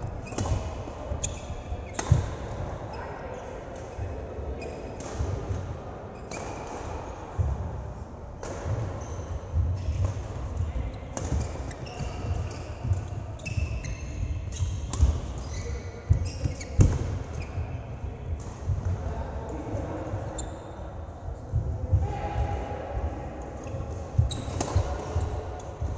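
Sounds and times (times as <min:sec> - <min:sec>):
shoes squeaking on floor: 0:00.0 - 0:02.3, 0:09.0 - 0:10.0, 0:11.4 - 0:17.7, 0:20.3 - 0:20.7.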